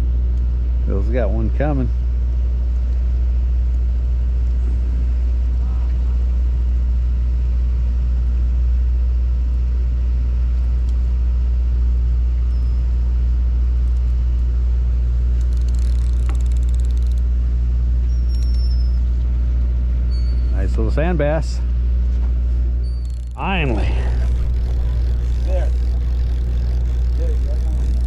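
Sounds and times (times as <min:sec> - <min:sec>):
boat engine idling: 0:10.2 - 0:20.2, 0:22.6 - 0:28.0.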